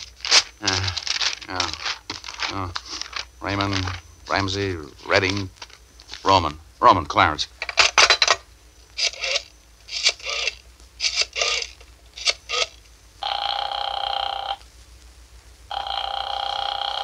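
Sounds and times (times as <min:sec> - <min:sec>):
rotary dial whirring: 0:00.0 - 0:04.4, 0:09.0 - 0:14.5
telephone line ringing: 0:10.2 - 0:14.6, 0:15.7 - 0:17.0.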